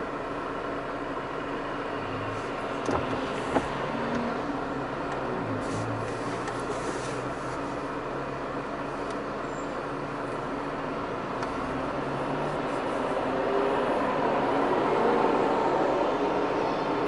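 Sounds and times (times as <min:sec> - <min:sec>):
car engines idling: 0:00.0 - 0:14.6
traffic noise: 0:00.0 - 0:17.0.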